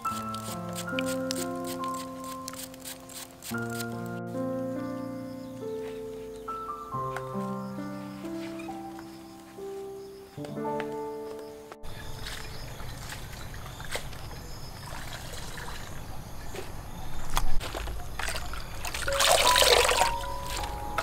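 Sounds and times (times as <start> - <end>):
water trickling and sloshing: 11.9 - 21.0
water splash: 12.1 - 16.2, 17.6 - 21.0.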